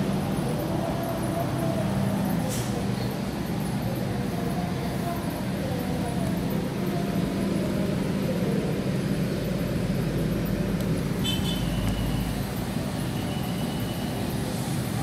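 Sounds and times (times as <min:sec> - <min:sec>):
faint high beep: 0:13.0 - 0:14.2.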